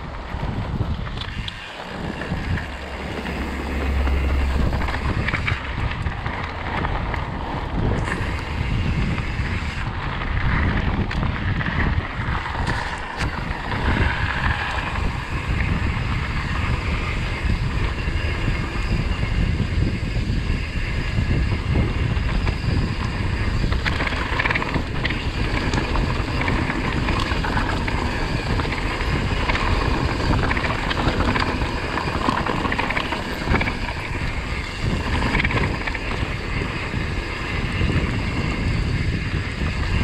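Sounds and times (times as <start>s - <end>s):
vehicle and road noise: 0.0s - 21.5s, 23.3s - 40.0s
wind buffeting microphone: 0.0s - 40.0s.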